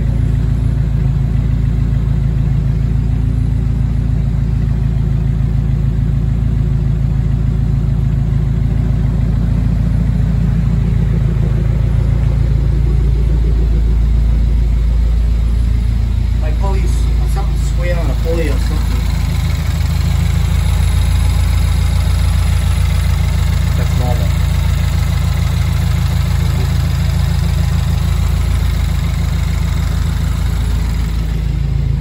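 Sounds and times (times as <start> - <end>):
car engine idling: 0.0 - 32.0.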